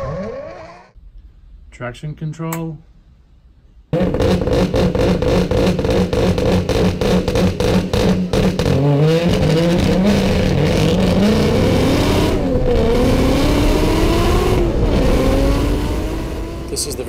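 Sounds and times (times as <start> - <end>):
gear changes: 0.0 - 1.0
turbocharged car engine revving: 4.0 - 17.0.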